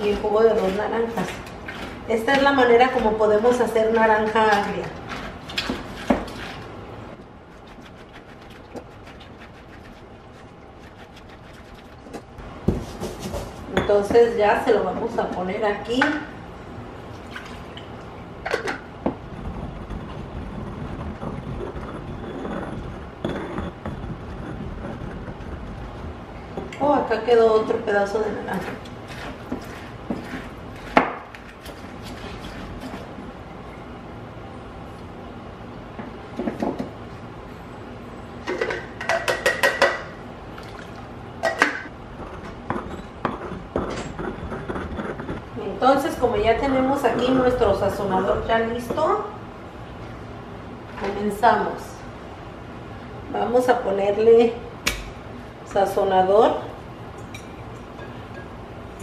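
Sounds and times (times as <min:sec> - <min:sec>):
stone scraping on stone: 0:19.3 - 0:26.1, 0:42.2 - 0:46.4.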